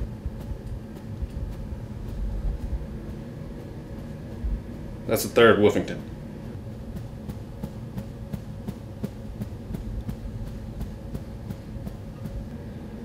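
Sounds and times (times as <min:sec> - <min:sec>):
bare feet tapping on carpet: 0:00.0 - 0:05.0, 0:06.6 - 0:12.5.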